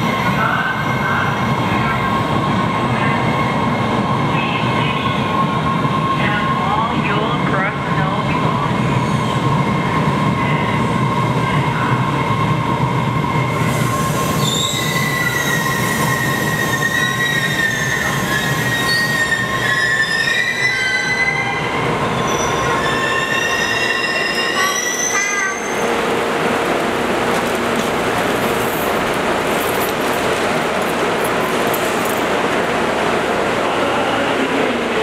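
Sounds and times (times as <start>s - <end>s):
subway train rumbling: 0.0s - 35.0s
train brakes squealing: 13.5s - 25.9s.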